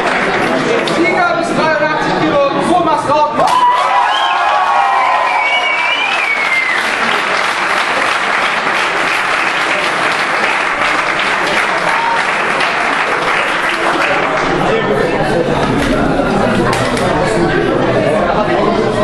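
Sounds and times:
crowd applauding: 0.0 - 1.2, 3.4 - 15.0.

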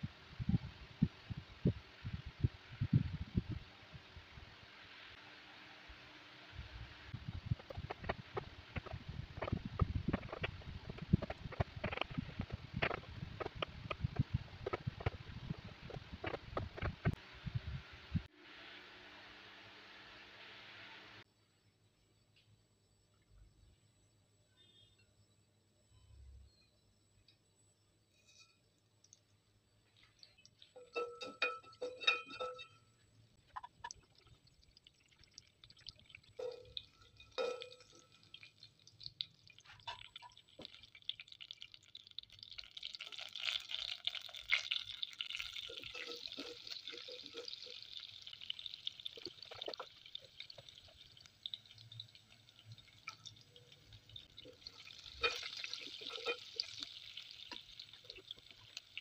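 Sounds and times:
seeds sizzling in hot oil: 0.0 - 21.3, 33.4 - 59.0
spatula stirring: 7.4 - 17.2, 43.4 - 52.0, 54.2 - 59.0
light ringing clinks: 30.6 - 33.1, 36.4 - 38.2.

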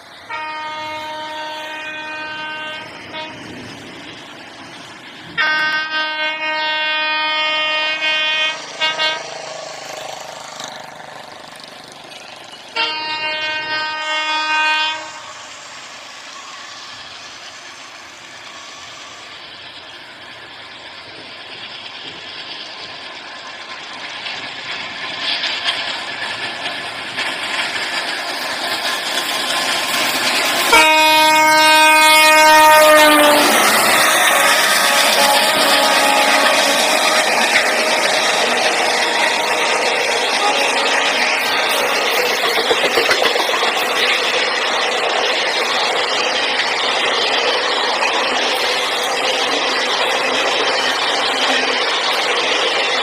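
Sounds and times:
electronic train horn: 0.2 - 3.7, 5.4 - 9.6, 12.8 - 15.6, 30.6 - 42.2
toy train running on track: 4.7 - 53.0.

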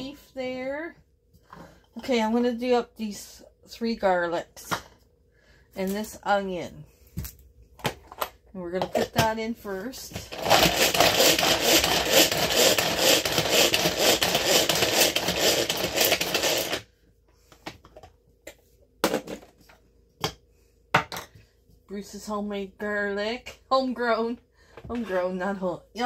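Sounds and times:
cord food chopper whirring: 10.2 - 16.9.

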